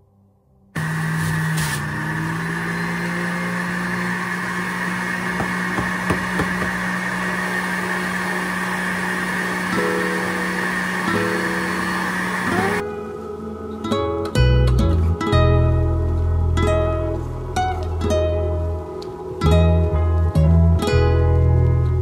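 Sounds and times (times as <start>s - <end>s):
juicer motor humming and whining: 0.8s - 12.9s.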